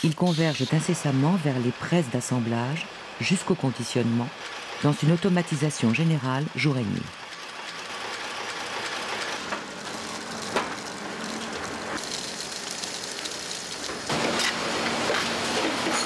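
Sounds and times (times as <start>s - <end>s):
sharp machine clicks: 7.1s - 9.5s.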